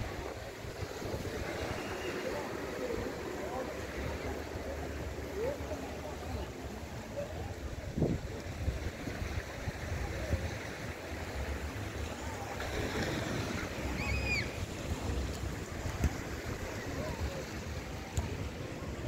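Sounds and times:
waves washing onto beach: 0.0s - 19.0s
wind buffeting microphone: 7.7s - 10.7s.

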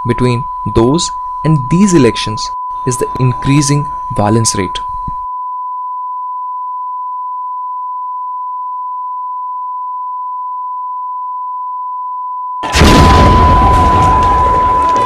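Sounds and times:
steady electronic tone: 0.0s - 7.2s.

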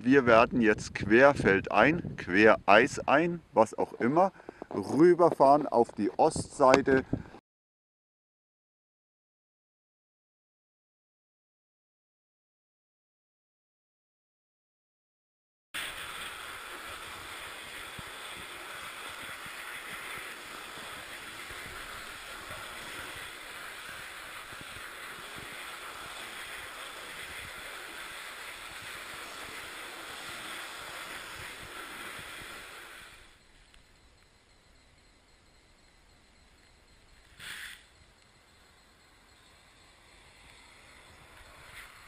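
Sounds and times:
wind on microphone: 0.3s - 3.1s, 6.1s - 7.4s
bicycle tyres rolling over ice: 15.8s - 33.5s.

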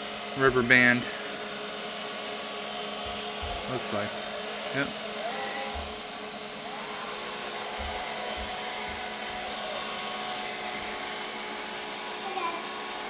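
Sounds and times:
robot vacuum whirring: 0.0s - 13.0s
soft low thumps: 3.0s - 3.8s.

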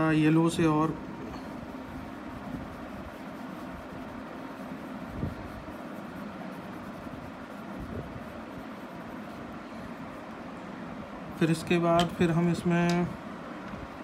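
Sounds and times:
pencil scratching on paper: 0.0s - 10.3s.

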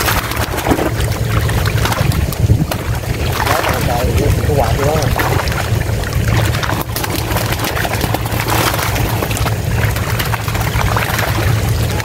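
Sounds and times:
fish splashing in water: 0.0s - 12.0s
steady low hum: 0.0s - 12.0s.

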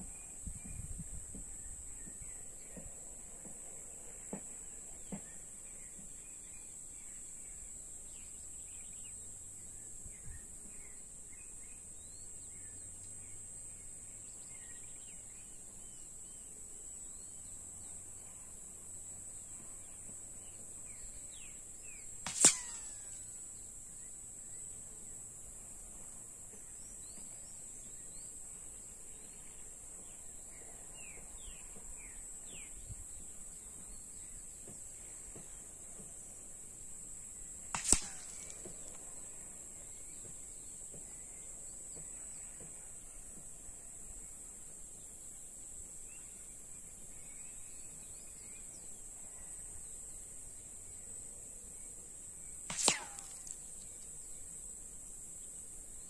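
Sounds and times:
wind rumble on microphone: 0.4s - 2.4s
short bird chirps: 22.2s - 23.4s, 37.8s - 38.8s, 52.7s - 53.7s.

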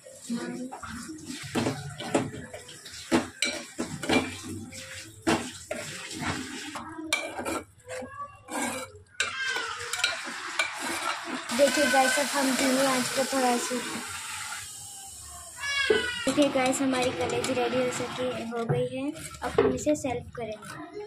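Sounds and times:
metal spoon scraping pot: 5.5s - 14.5s, 15.9s - 19.8s.

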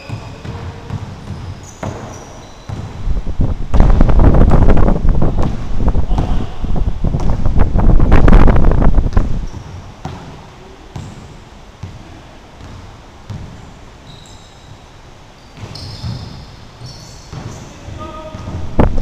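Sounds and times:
sneaker squeaks: 0.0s - 3.0s, 9.4s - 10.3s, 10.9s - 12.0s, 12.6s - 18.6s
basketball bouncing: 0.0s - 3.1s, 3.7s - 13.6s, 15.6s - 19.0s
wind noise on microphone: 3.0s - 9.5s, 18.5s - 19.0s.

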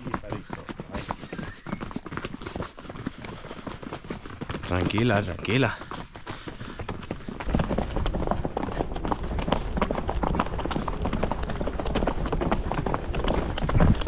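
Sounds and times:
horse hooves on dirt trail: 0.0s - 14.0s
wind buffeting microphone: 13.5s - 14.0s.

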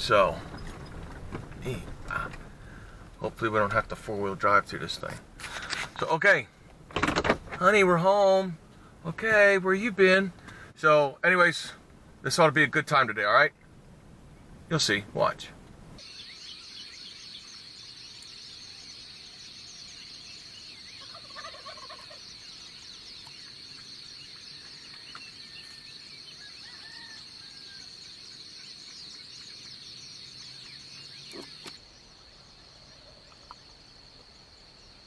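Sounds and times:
birds chirping: 0.0s - 35.0s
high-pitched insect hum: 16.0s - 35.0s
turkey gobbling: 21.0s - 22.7s.

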